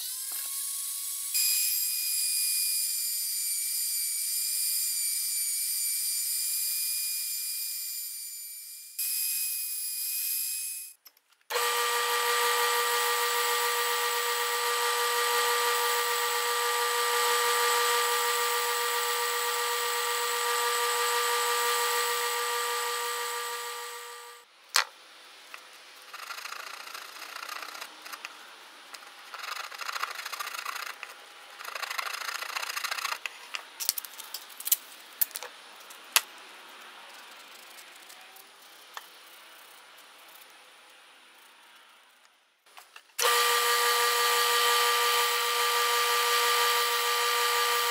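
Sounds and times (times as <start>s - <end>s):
belt sander running: 11.5s - 24.4s, 43.2s - 47.9s.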